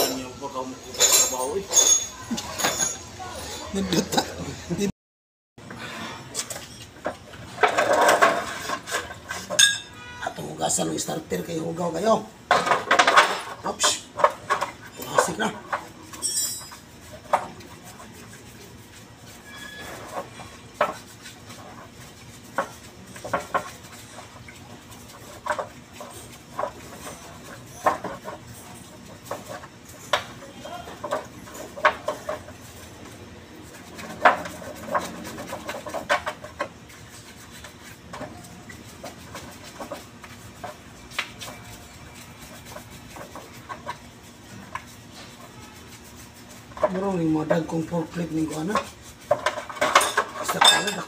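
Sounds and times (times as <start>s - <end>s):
metal parts clinking in a tray: 0.9s - 3.1s, 16.2s - 16.8s, 49.5s - 51.0s.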